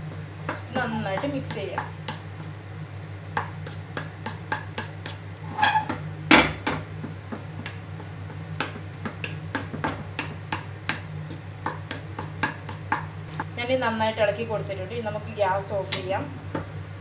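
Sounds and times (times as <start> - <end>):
steady low hum: 0.0 - 17.0
wooden spatula tapping in pan: 8.6 - 13.5.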